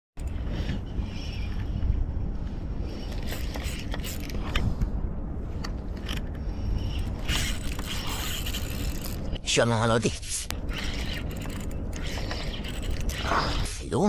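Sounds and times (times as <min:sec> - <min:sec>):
wind buffeting microphone: 0:00.2 - 0:09.4
fishing reel clicks: 0:06.9 - 0:09.2, 0:10.7 - 0:13.3.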